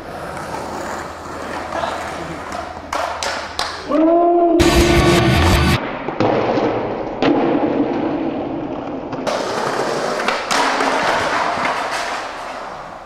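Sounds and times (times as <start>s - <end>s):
skateboard rolling on concrete: 0.0s - 3.9s, 5.9s - 13.0s
skateboard knocking on concrete: 1.4s - 3.9s, 9.2s - 13.0s.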